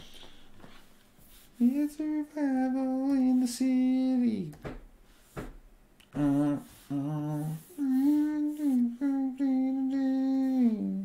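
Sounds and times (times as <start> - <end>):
person humming a slow tune: 1.6 - 4.4, 6.0 - 11.0.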